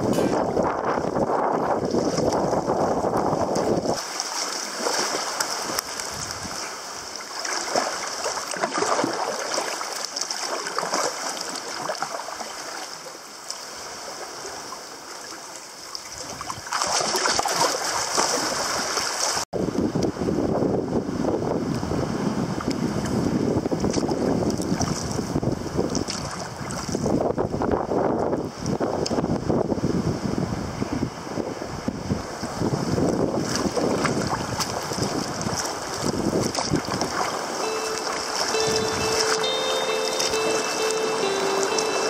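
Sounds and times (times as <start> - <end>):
wind buffeting microphone: 0.0 - 4.0, 19.6 - 37.6
water sloshing against hull: 0.0 - 19.4, 23.7 - 27.2, 33.1 - 41.9.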